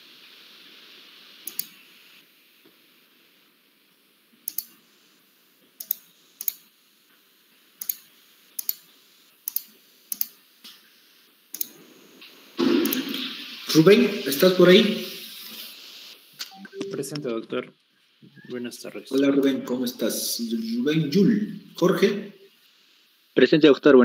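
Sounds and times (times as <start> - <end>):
faint hiss: 0.0 - 24.0
computer mouse clicking: 1.4 - 1.8, 4.5 - 4.8, 5.8 - 6.6, 7.8 - 10.4, 11.5 - 11.8.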